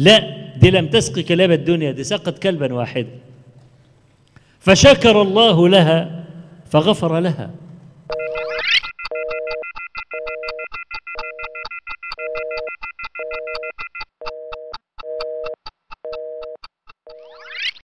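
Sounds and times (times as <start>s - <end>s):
synthesized beep: 8.1s - 14.1s, 15.4s - 17.8s.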